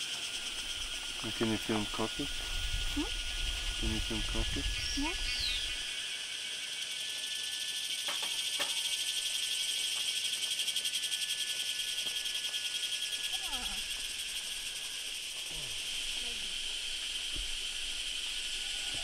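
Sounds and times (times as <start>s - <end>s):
chorus of calling animals: 13.2s - 14.0s.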